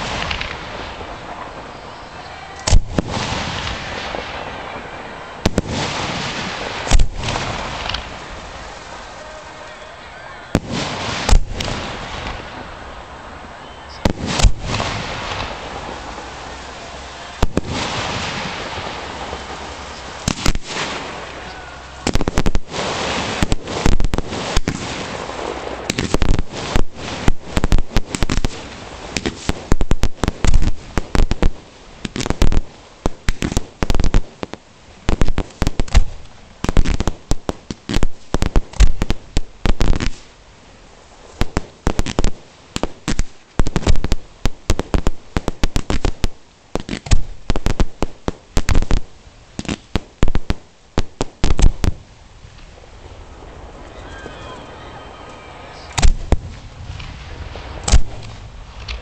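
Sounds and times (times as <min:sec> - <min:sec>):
fireworks shells firing from mortars: 0:00.0 - 0:13.2, 0:13.9 - 0:40.4, 0:41.2 - 0:54.8, 0:55.7 - 0:59.0
fireworks bursting bangs: 0:00.0 - 0:59.0
rapid barrage of sharp reports: 0:08.9 - 0:11.3, 0:12.8 - 0:23.9.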